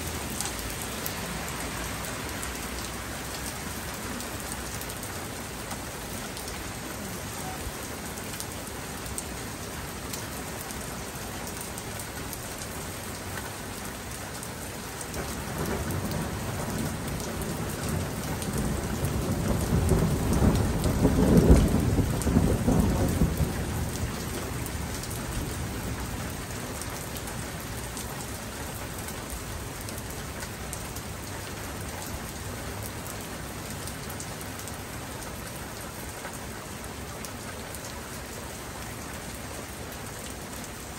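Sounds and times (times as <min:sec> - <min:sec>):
steady rain falling: 0:00.0 - 0:40.9
thunder rolling: 0:18.1 - 0:24.2.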